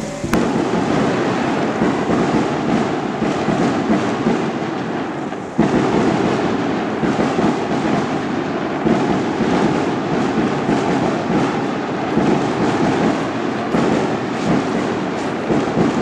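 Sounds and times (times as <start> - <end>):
firecrackers crackling: 0.0 - 16.0.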